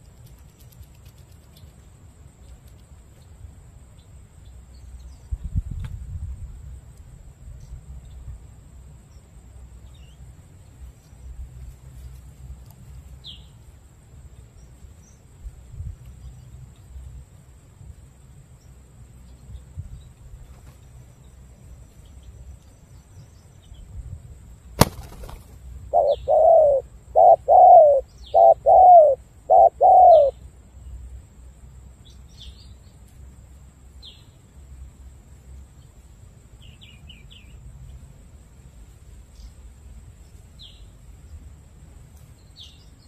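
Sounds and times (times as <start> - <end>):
small birds chirping faintly: 0.0 - 6.0, 6.6 - 43.0
dove cooing: 25.9 - 30.4.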